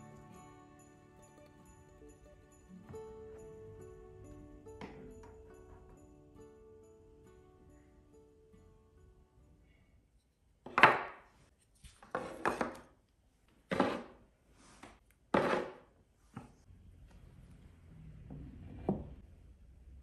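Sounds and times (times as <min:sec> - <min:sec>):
wooden blocks knocking: 0:10.6 - 0:11.2
wooden blocks scraping: 0:11.8 - 0:12.9, 0:13.7 - 0:15.8.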